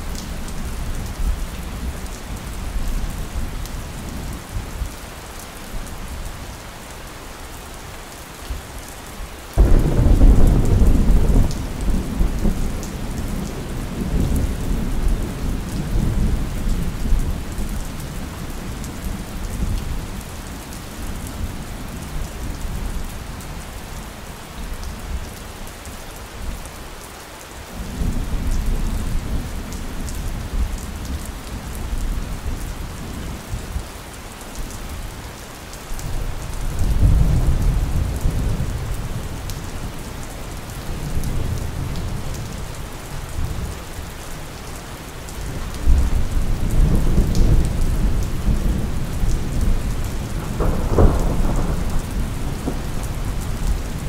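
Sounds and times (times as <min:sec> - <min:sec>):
steady rainfall: 0:00.0 - 0:54.0
rolling thunder: 0:09.6 - 0:16.2, 0:45.9 - 0:54.0.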